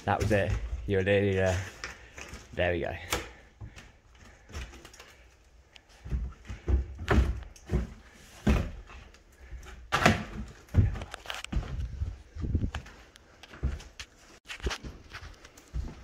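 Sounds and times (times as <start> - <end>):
thuds of person climbing: 6.0 - 13.0.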